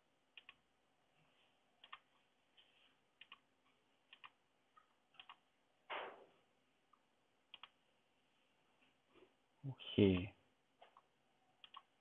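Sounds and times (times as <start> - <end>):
computer mouse clicks: 0.4 - 0.6, 1.8 - 2.2, 3.2 - 3.5, 4.1 - 5.4, 6.9 - 7.8, 10.9 - 11.9.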